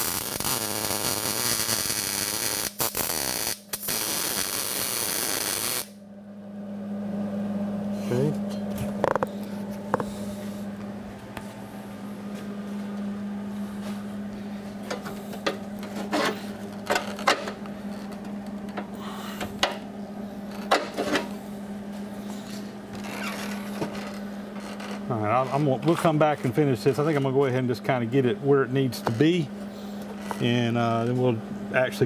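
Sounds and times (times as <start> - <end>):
mig welder tack welds: 0.0 - 6.0
steady low hum: 0.0 - 32.0.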